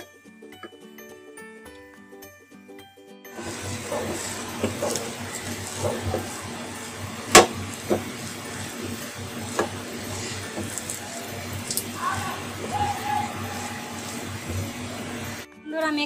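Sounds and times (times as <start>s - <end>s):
wooden spatula scraping a pan: 3.4s - 15.4s
steady hiss: 3.4s - 15.5s.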